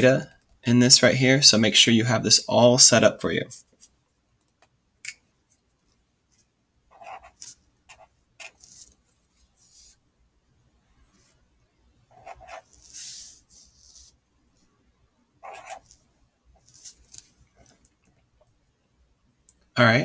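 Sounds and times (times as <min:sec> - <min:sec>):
marker pen squeaking on paper: 0:06.9 - 0:09.0, 0:12.1 - 0:14.1, 0:15.4 - 0:17.9.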